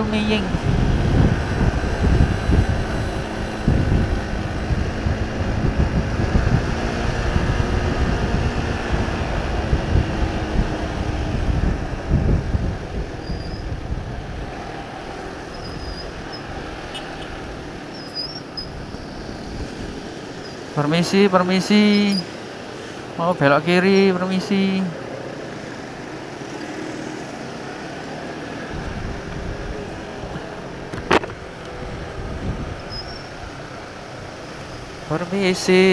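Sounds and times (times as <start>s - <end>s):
wind rumble on microphone: 0.0s - 20.7s, 28.6s - 35.2s
motorcycle engine hum: 0.0s - 35.6s.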